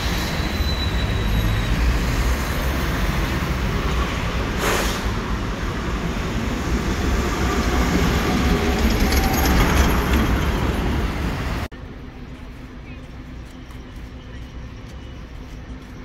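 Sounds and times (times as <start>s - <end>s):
tram rumbling on rails: 0.0s - 16.0s
short hiss: 4.6s - 5.1s.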